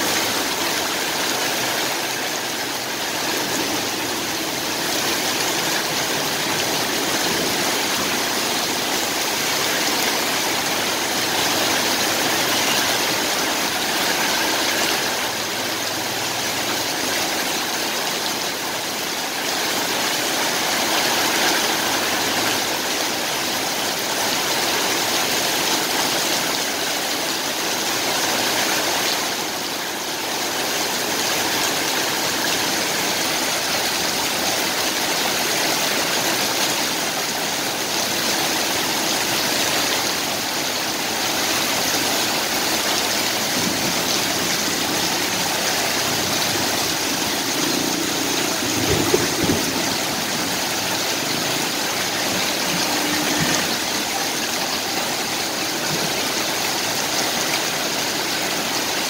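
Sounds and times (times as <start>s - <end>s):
heavy rain on pavement: 0.0s - 59.0s
vehicle splashing through water: 30.4s - 59.0s.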